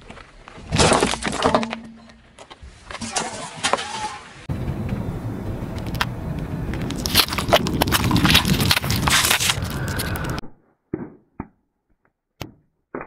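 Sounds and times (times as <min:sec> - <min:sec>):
crayons crackling under tyre: 0:05.7 - 0:10.4.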